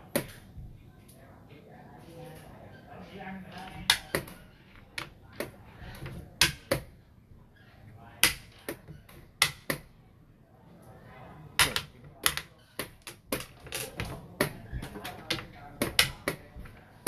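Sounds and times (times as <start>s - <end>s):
game pieces clacking on wooden board: 5.0s - 6.9s, 8.2s - 9.9s, 11.6s - 16.7s.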